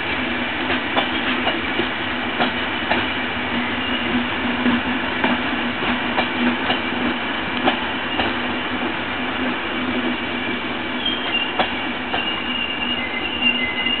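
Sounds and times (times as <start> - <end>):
train wheels clicking over rail joints: 0.6 - 10.3, 11.0 - 14.0
high wheel squeal: 3.7 - 4.2, 10.9 - 14.0.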